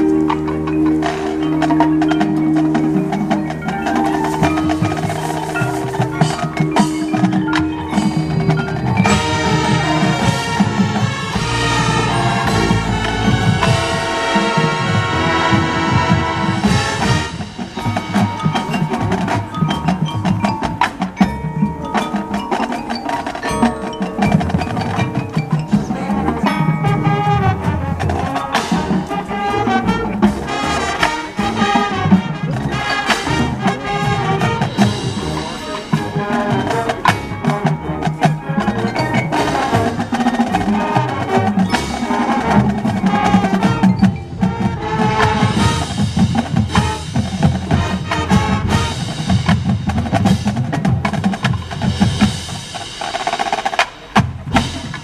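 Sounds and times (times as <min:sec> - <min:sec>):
marching band percussion: 0:00.0 - 0:55.0.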